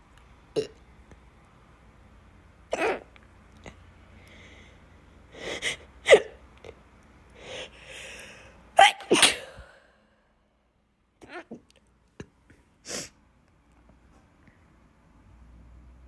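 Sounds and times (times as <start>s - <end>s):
woman hiccuping: 2.7s - 3.1s, 6.0s - 6.4s, 8.8s - 9.8s
breaths: 4.1s - 5.9s, 7.4s - 8.7s, 9.5s - 10.3s
woman sneezing: 8.8s - 9.9s.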